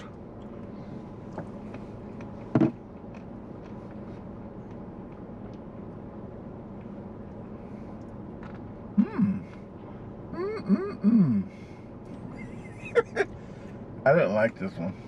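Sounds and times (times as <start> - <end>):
low hum inside car: 0.0 - 15.0.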